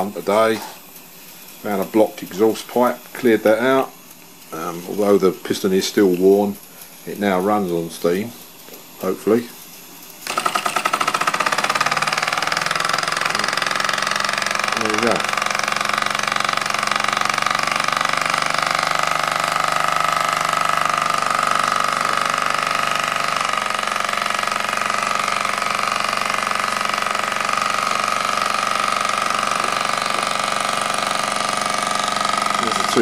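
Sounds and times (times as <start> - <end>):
hiss of escaping steam: 0.0 - 20.0
toy steam engine running: 0.0 - 33.0.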